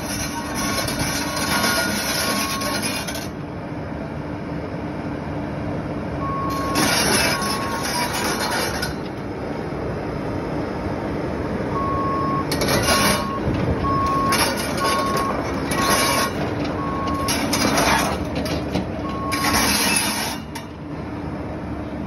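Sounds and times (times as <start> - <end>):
excavator engine drone: 0.0 - 22.0
travel alarm beeping: 0.4 - 3.0, 6.2 - 8.1, 11.7 - 18.3, 19.0 - 20.4.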